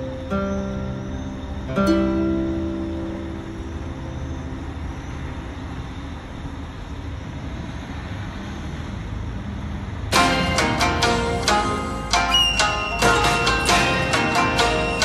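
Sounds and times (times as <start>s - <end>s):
plucked string music: 0.0s - 5.6s, 10.1s - 15.0s
heavy diesel vehicles rumbling: 0.0s - 15.0s.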